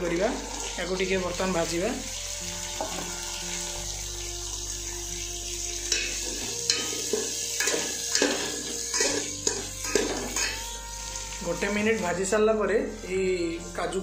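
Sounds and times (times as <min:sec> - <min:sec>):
vegetables sizzling in hot fat: 0:00.0 - 0:14.0
metal spoon scraping a pot: 0:05.9 - 0:11.0.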